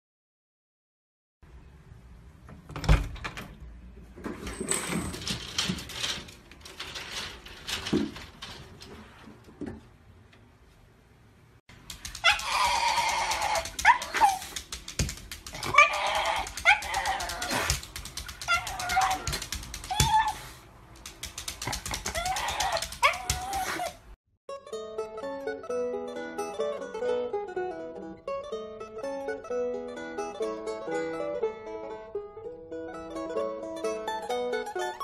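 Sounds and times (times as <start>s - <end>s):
sharp knocks and rattles: 4.2s - 10.0s, 11.7s - 20.2s
dog whining cries: 12.1s - 14.6s, 15.5s - 20.6s, 21.9s - 24.1s.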